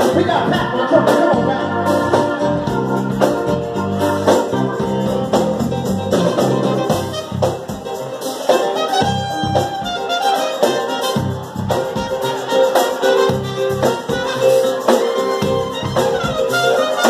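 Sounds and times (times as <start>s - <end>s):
horns: 0.0s - 17.0s
live band playing: 0.0s - 17.0s.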